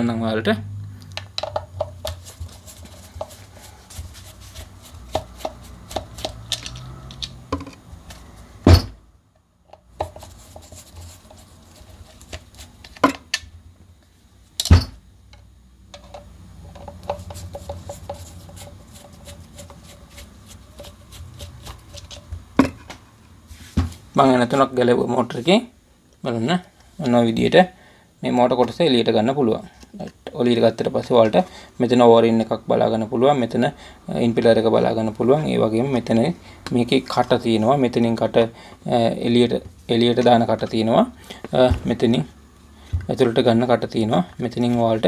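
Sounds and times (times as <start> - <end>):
parts knocking when set down: 1.2 - 2.2, 6.0 - 9.0, 12.9 - 13.4.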